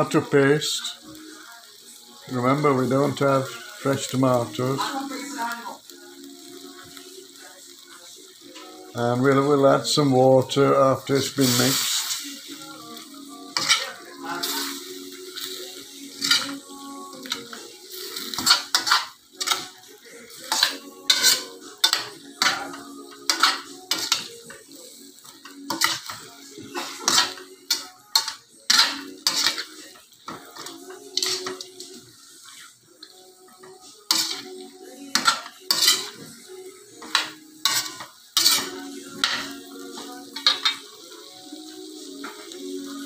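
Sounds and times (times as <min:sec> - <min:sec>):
metal spatula scraping a wok: 0:13.5 - 0:16.7, 0:17.3 - 0:24.6, 0:25.4 - 0:31.8, 0:32.4 - 0:32.8, 0:34.1 - 0:36.4, 0:37.0 - 0:40.9.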